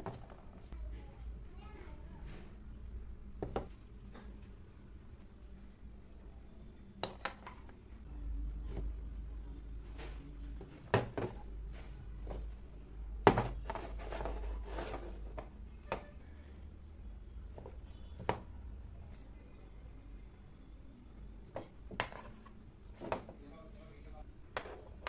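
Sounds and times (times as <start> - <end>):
soft rubbing and handling: 7.5 - 16.3, 21.1 - 23.4.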